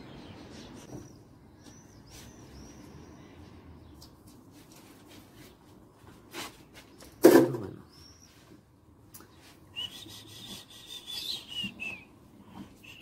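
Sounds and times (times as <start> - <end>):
clothes and clothespins rustling: 4.0 - 7.2.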